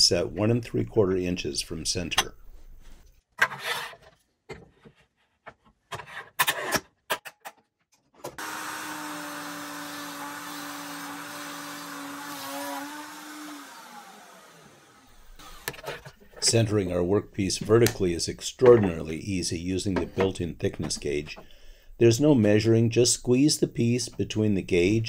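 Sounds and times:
power tool motor running: 0:08.4 - 0:15.7.

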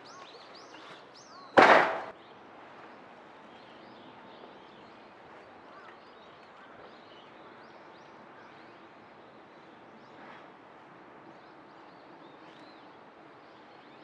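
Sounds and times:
birds chirping: 0:00.0 - 0:10.4.

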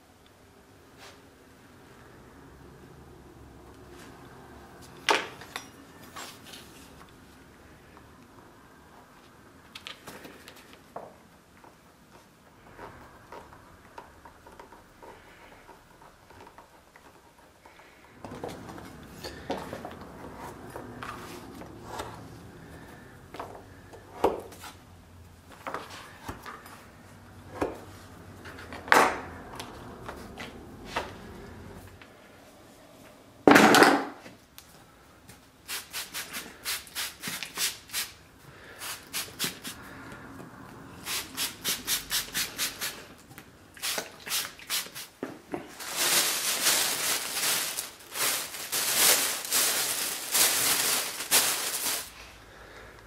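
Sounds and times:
spray bottle squirting water: 0:41.1 - 0:43.0, 0:43.8 - 0:45.2.

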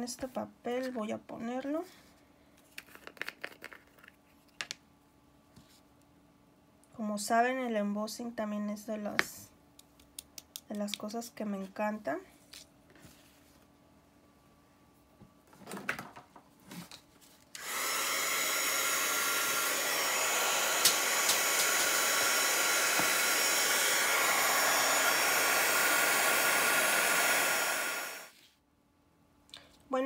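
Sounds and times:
heat tool blowing air: 0:17.6 - 0:28.4.

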